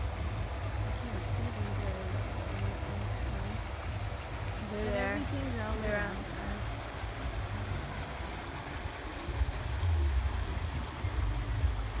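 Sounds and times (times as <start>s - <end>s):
fountains splashing: 0.0s - 12.0s
low rumble on microphone: 0.0s - 12.0s.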